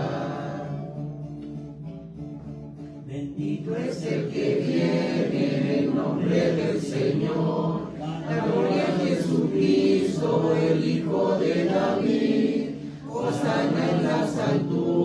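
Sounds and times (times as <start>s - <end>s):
voices singing a hymn: 0.0s - 1.1s, 3.1s - 15.0s.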